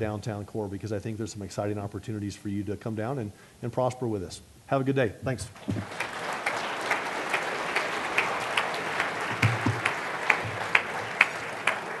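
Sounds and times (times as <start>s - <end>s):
audience applauding: 5.6s - 12.0s
nearby person clapping: 5.6s - 12.0s.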